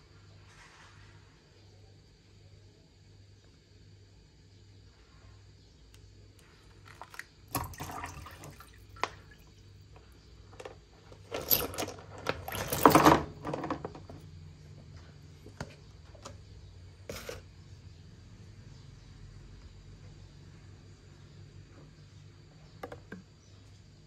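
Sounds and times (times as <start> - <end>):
water sloshing and pouring: 6.7 - 9.8
water splashes: 6.8 - 9.6.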